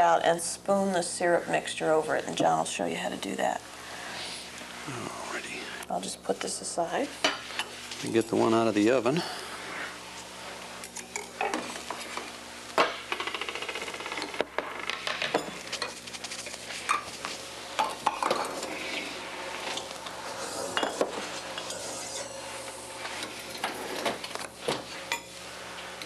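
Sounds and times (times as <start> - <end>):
dishes and utensils clattering: 15.0 - 16.0, 17.8 - 18.7, 20.6 - 22.5.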